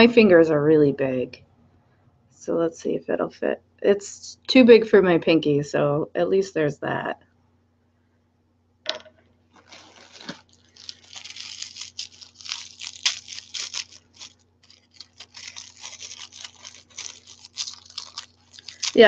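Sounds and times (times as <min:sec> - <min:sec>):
wrapping crinkling and tearing: 0:09.5 - 0:19.0.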